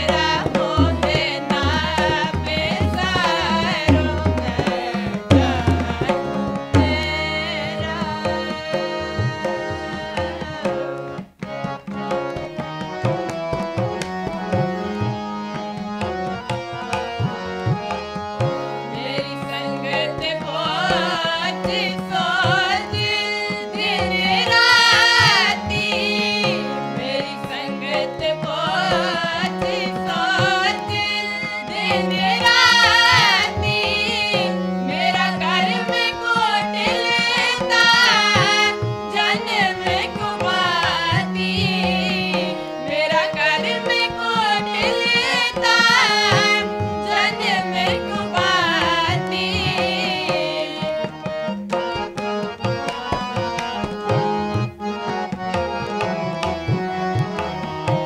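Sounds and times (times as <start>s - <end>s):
group singing: 0.0s - 10.7s, 19.0s - 51.1s
harmonium chords: 0.0s - 58.0s
tabla rhythm: 0.0s - 58.0s.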